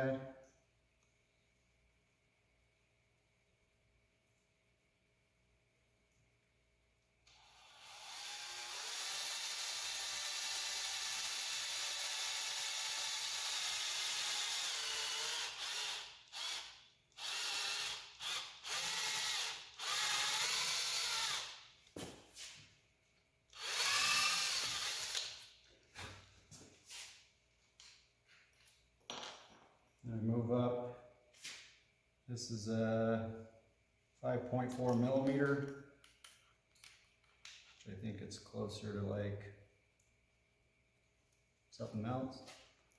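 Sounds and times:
cordless drill boring: 0:07.3 - 0:21.6, 0:23.5 - 0:25.3.

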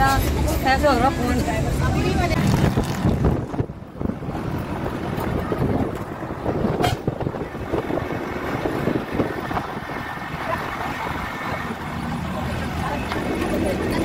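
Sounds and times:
bus engine: 0:00.0 - 0:14.0
road noise: 0:00.0 - 0:14.0
wind on microphone: 0:02.1 - 0:11.8.

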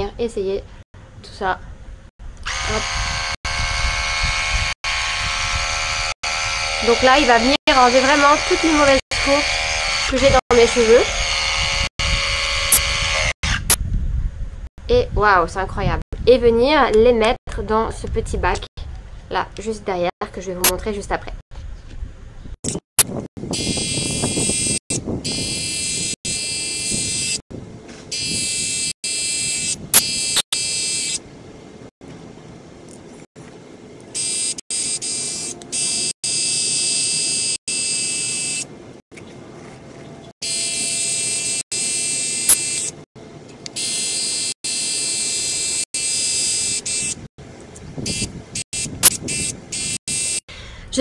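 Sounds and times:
small motor whining: 0:02.3 - 0:13.6.

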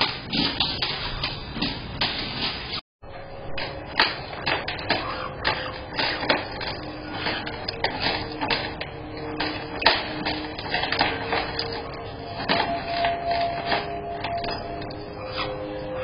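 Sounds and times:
birds clicking on wooden perches: 0:03.6 - 0:15.6.

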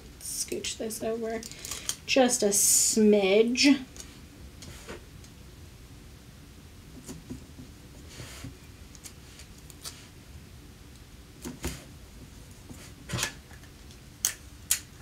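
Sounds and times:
tape rustling and clicking: 0:08.9 - 0:10.0.

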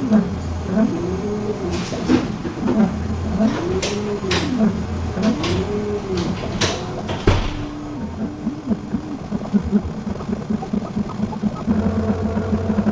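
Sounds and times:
printer motors whining: 0:00.0 - 0:12.9
sharp clicks: 0:03.4 - 0:12.9.

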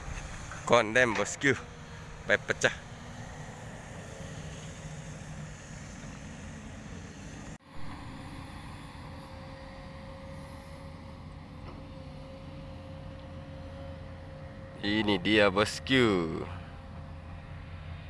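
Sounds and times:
excavator engine drone: 0:00.0 - 0:18.0.

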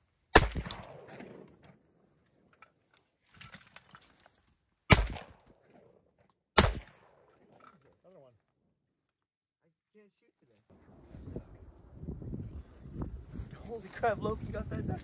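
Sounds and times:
shotgun shots: 0:00.3 - 0:01.5, 0:04.9 - 0:05.9, 0:06.6 - 0:07.3.

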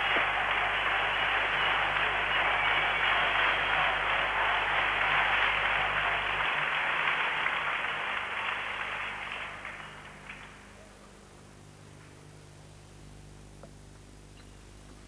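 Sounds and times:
crowd applauding: 0:00.0 - 0:10.8.

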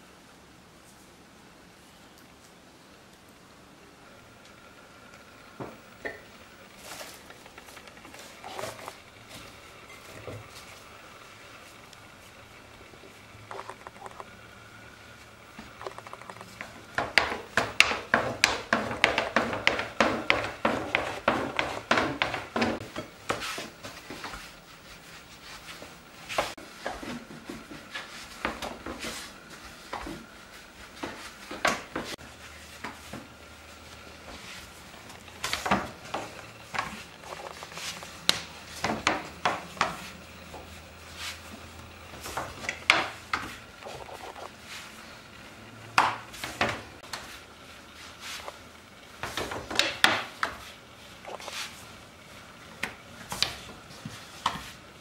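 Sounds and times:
dough worked on board: 0:04.0 - 0:55.0
rolling pin on wooden board: 0:15.6 - 0:24.5, 0:34.3 - 0:44.8.

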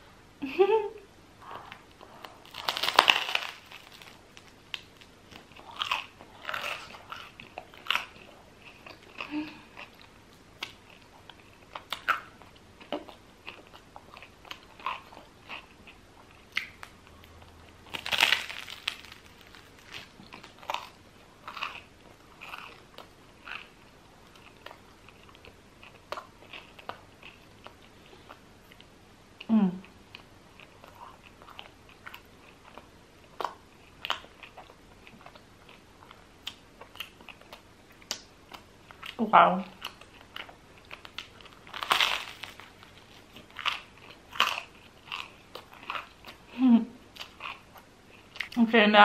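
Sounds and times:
bread crust crunching: 0:02.2 - 0:09.0, 0:17.7 - 0:23.8, 0:39.8 - 0:46.2.

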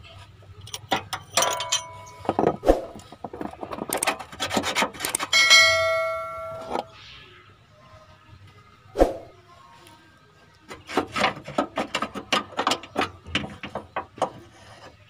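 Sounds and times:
steel tools clinking and scraping: 0:00.6 - 0:07.0
bright bell ding: 0:05.4 - 0:06.9.

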